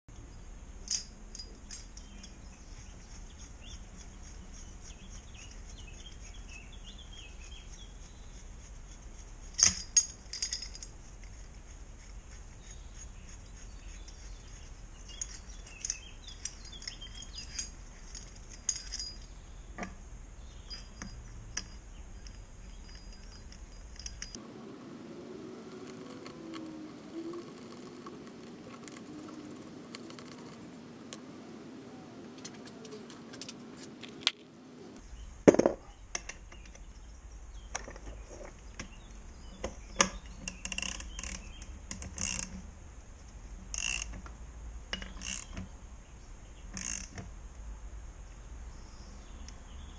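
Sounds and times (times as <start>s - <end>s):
metal tool clinks: 0.9s - 2.5s, 9.6s - 11.0s, 15.1s - 19.4s, 20.5s - 24.4s.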